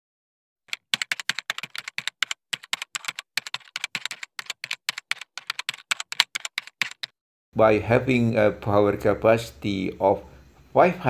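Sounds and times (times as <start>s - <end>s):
keyboard key clicks: 0.7s - 7.1s.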